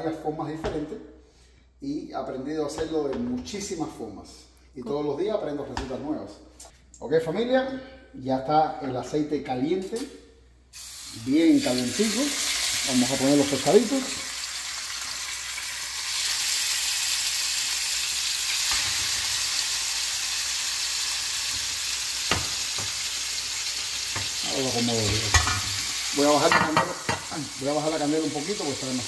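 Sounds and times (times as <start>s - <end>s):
fish sizzling in a frying pan: 10.8s - 29.0s.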